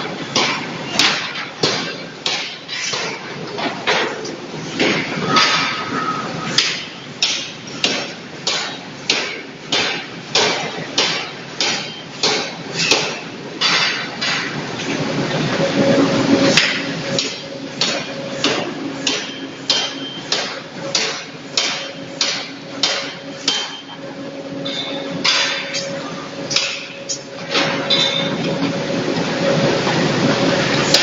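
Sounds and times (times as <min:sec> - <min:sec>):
rushing noise with hum: 0:00.0 - 0:31.0
forging hammer striking steel: 0:00.4 - 0:03.2, 0:04.8 - 0:14.6, 0:16.5 - 0:24.0, 0:24.6 - 0:28.7.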